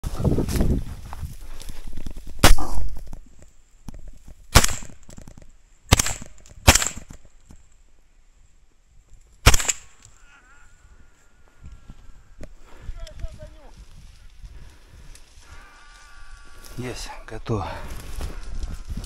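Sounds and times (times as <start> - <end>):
rifle shots: 4.5 - 5.0, 5.9 - 7.2, 9.4 - 10.0.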